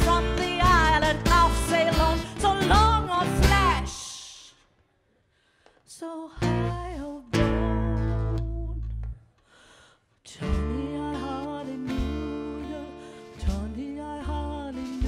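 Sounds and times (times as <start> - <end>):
person singing: 0.0 - 4.4, 10.4 - 15.0.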